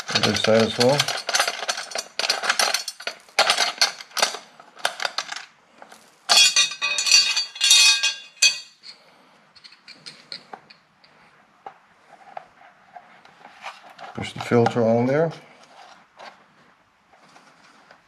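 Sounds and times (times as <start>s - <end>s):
metallic clatter: 0.0s - 5.5s, 6.3s - 9.0s.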